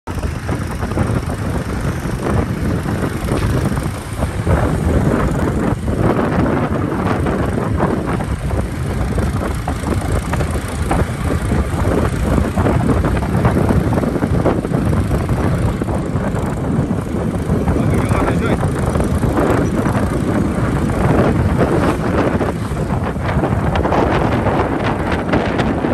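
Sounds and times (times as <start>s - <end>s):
motorcycle engine running: 0.1s - 25.9s
wind buffeting microphone: 0.1s - 25.9s.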